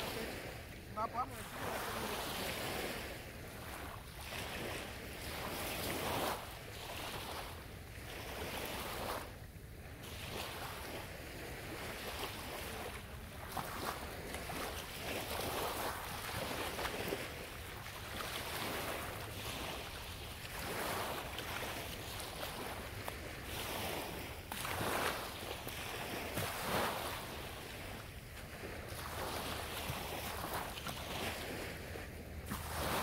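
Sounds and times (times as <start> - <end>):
small waves washing on sand: 0.0 - 33.0.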